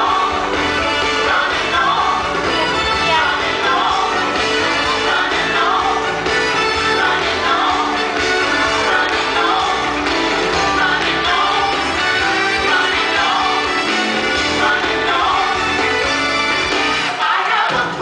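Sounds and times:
worship song with singing: 0.0s - 16.2s, 17.1s - 18.0s.

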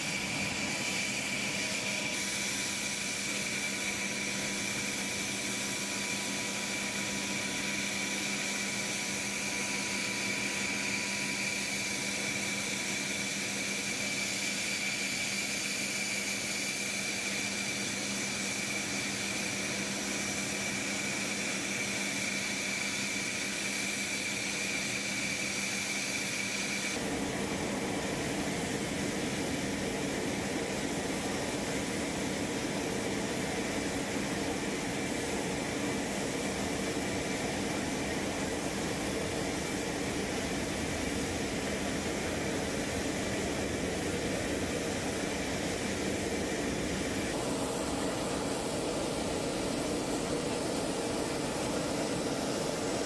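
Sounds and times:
helicopter turbine whine: 0.0s - 53.0s.

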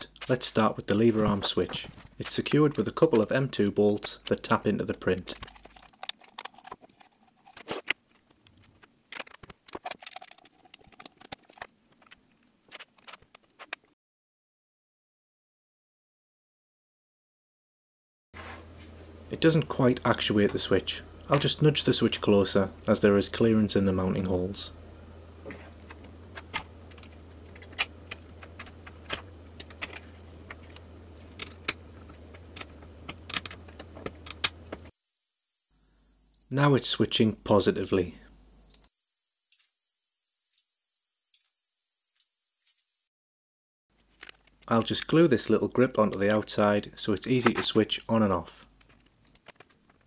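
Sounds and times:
steady low hum: 18.4s - 43.1s.

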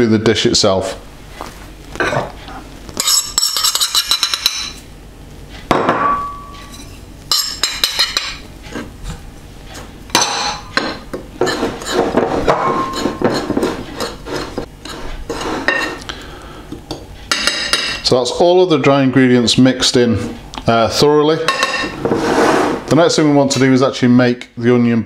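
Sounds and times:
fork scraping ceramic bowl: 11.4s - 12.2s, 12.8s - 16.0s.

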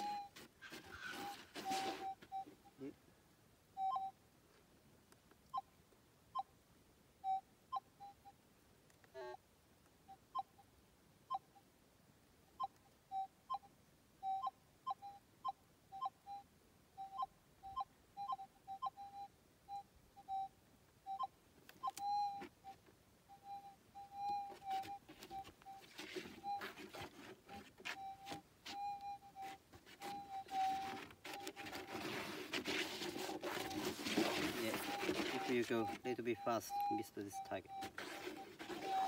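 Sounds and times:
metal detector beeps: 0.0s - 2.9s, 3.8s - 4.2s, 7.2s - 8.4s, 12.6s - 32.4s, 33.1s - 39.0s
rustle: 0.0s - 39.0s.

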